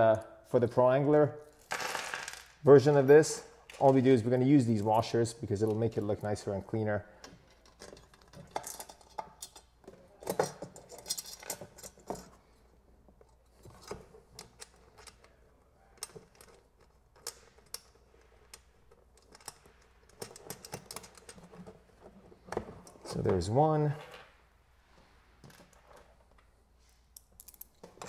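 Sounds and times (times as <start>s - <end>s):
small metal parts clinking: 7.4s - 12.4s, 27.2s - 28.0s.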